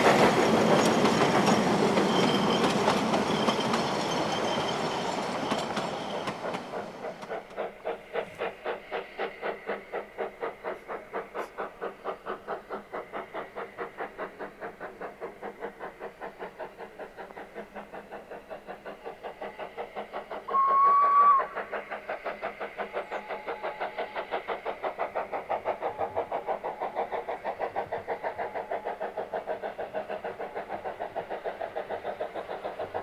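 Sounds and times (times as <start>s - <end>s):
steam locomotive chuffing: 0.0s - 33.0s
steam whistle blast: 20.5s - 21.6s.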